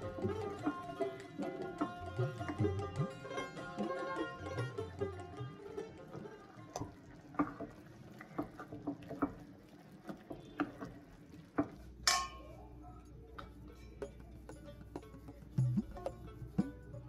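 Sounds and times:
wooden spatula stirring in a pan: 0:05.7 - 0:16.8
faint taps: 0:06.7 - 0:11.9.

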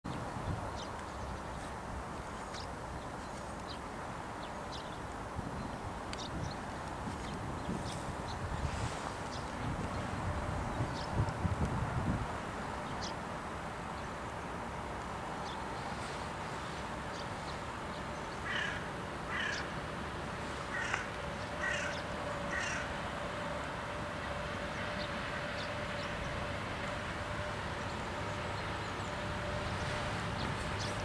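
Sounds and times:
electric locomotive rumbling: 0:04.2 - 0:31.0
crow cawing: 0:18.4 - 0:19.7, 0:20.7 - 0:22.9.

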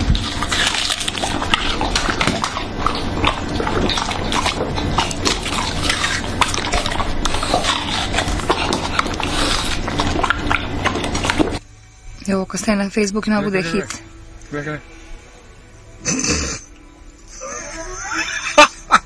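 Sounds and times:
dog chewing and slurping watermelon: 0:00.0 - 0:11.6.

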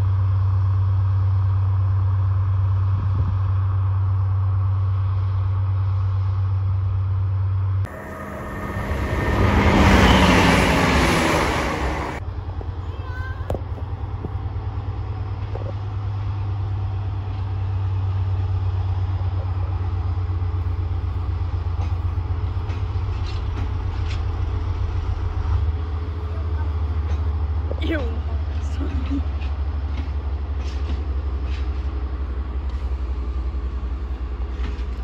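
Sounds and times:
loud rushing pass-by: 0:07.9 - 0:12.2
diesel locomotive throbbing: 0:07.9 - 0:35.0.

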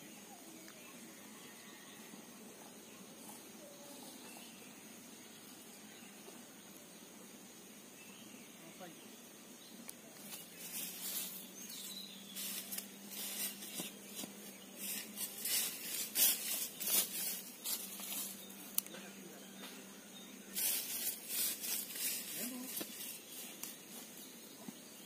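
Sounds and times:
grass and foliage rustling: 0:09.8 - 0:25.0.

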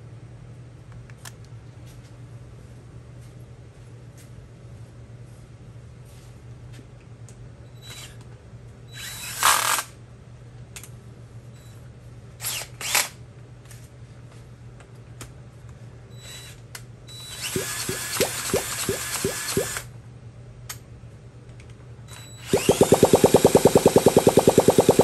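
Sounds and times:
power drill spinning: 0:17.3 - 0:19.9, 0:22.4 - 0:25.0.

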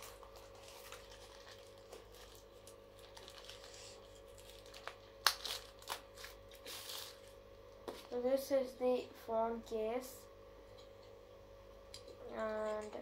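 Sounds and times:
plastic wrap rustling and crackling: 0:00.0 - 0:08.2.

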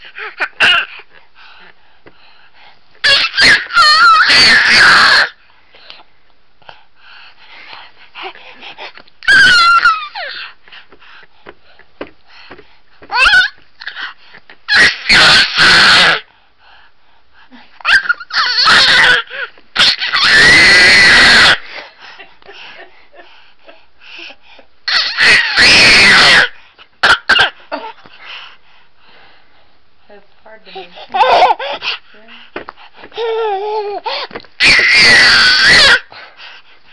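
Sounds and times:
baby squealing: 0:03.0 - 0:05.4, 0:09.2 - 0:10.4, 0:13.1 - 0:14.0, 0:14.7 - 0:16.2, 0:17.8 - 0:21.6, 0:24.9 - 0:27.4, 0:31.2 - 0:31.7, 0:33.2 - 0:36.1.

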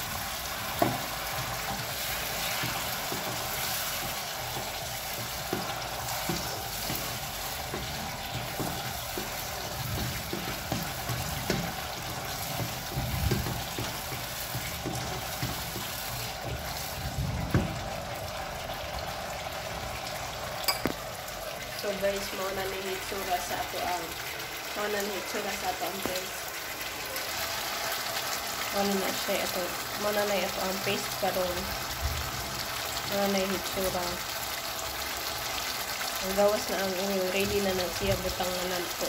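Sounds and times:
paste sizzling in a pan: 0:00.0 - 0:21.6, 0:23.3 - 0:39.0
wooden spatula scraping a pan: 0:00.2 - 0:17.5.

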